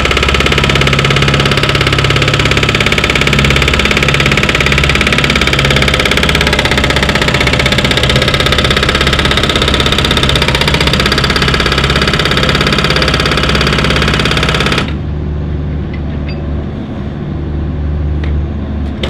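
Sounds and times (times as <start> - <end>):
hydraulic hammer pounding concrete: 0.0 - 15.0.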